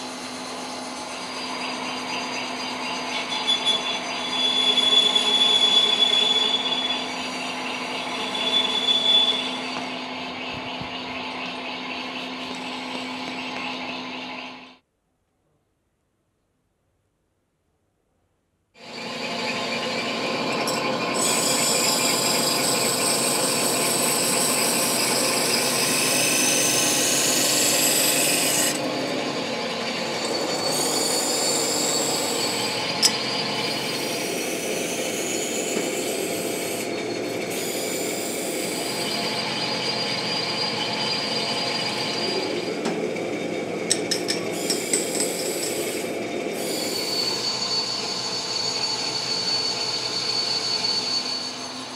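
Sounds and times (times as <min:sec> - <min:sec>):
machining scraping with high whines: 0:00.2 - 0:14.8, 0:18.8 - 0:51.9.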